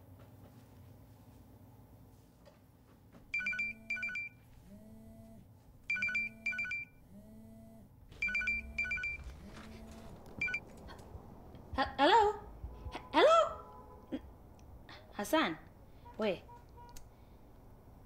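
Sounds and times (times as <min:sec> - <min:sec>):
phone ringing with double ring: 0:03.3 - 0:04.4, 0:05.9 - 0:07.0, 0:08.2 - 0:09.3
low pulsing buzz: 0:04.6 - 0:05.5, 0:06.3 - 0:13.2.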